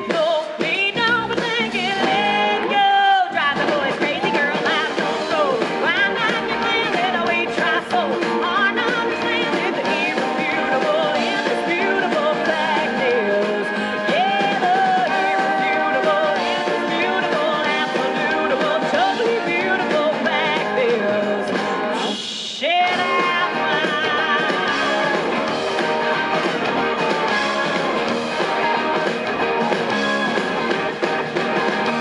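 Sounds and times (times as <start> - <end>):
woman singing: 0.0 - 25.4
live rock band playing: 0.0 - 32.0
rising guitar slide: 22.9 - 32.0.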